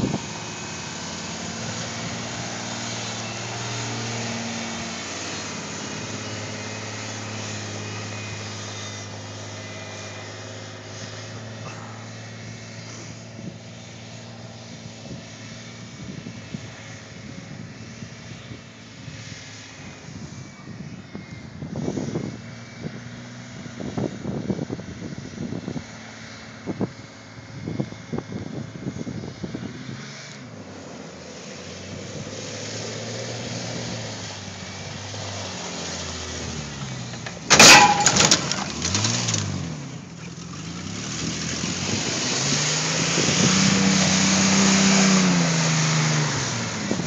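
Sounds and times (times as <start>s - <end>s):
wind gusts on microphone: 41.6s - 47.0s.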